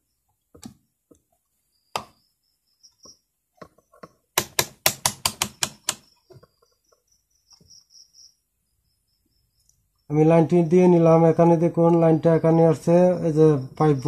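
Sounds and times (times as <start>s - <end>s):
test leads tapping: 2.9s - 7.7s
rotary switch clicking: 4.4s - 6.1s.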